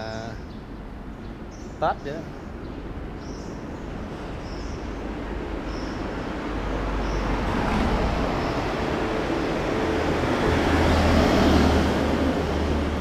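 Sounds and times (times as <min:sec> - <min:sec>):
vehicle passing: 0:04.5 - 0:13.0.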